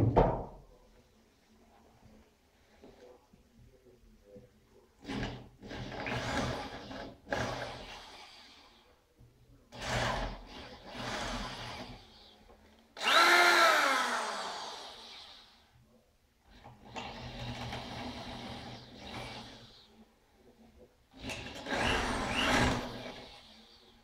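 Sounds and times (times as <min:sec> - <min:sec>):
electric drill boring into wood: 0:13.0 - 0:15.6, 0:21.2 - 0:23.5.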